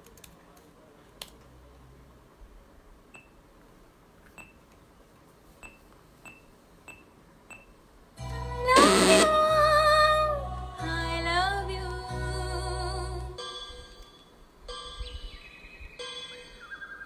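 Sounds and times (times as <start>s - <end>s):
karaoke backing track: 8.2s - 15.3s.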